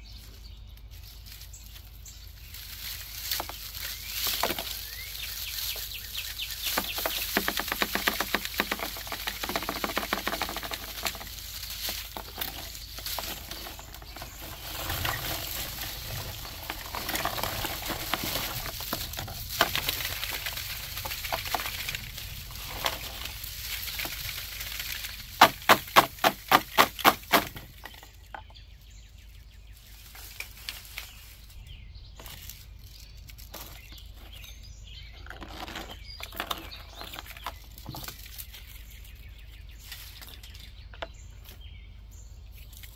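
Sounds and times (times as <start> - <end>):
dried seed heads rattling: 0.2 - 41.6
seeds spilling into tub: 1.2 - 27.8.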